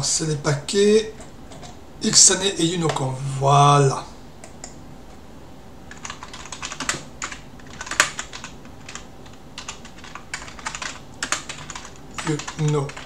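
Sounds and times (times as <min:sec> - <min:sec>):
typing on computer keyboard: 0:05.9 - 0:13.0.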